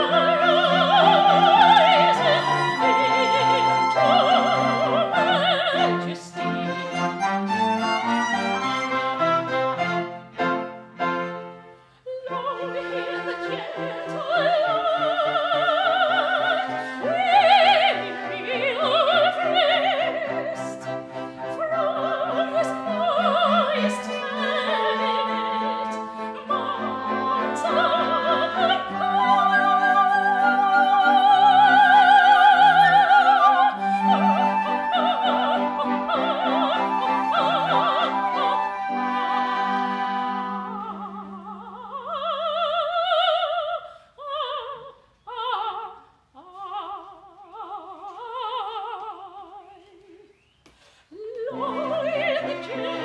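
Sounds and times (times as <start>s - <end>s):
flute: 0.0s - 7.0s, 16.5s - 41.6s
operatic soprano singing: 0.0s - 8.9s, 12.0s - 50.4s, 51.1s - 53.0s
cello: 0.0s - 44.7s, 51.1s - 53.0s
violin: 0.0s - 50.3s, 51.1s - 53.0s.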